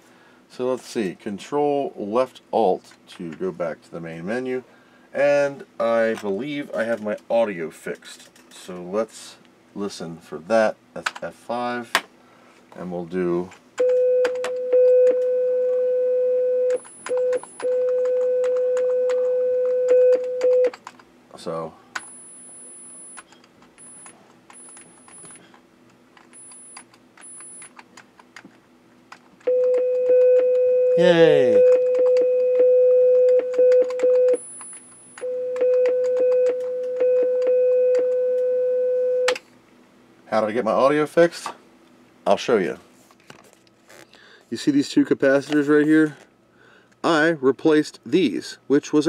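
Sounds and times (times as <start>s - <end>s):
keys clacking: 23.1s - 28.5s.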